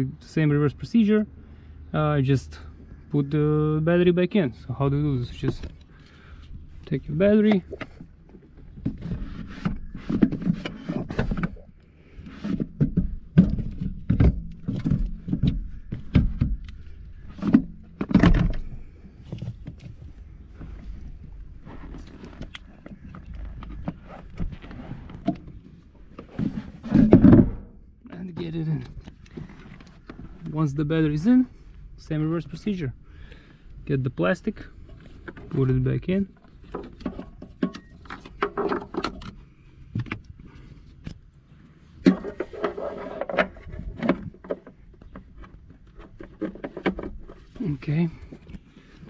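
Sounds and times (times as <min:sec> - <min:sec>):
plastic scraping and rattling: 0:06.9 - 0:21.0, 0:21.6 - 0:30.6, 0:34.7 - 0:41.2, 0:41.9 - 0:49.0.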